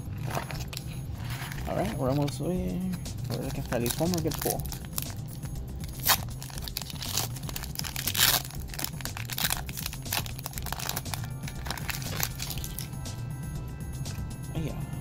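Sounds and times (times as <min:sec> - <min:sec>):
foil wrapper tearing and crinkling: 0:00.1 - 0:02.4, 0:03.2 - 0:12.9.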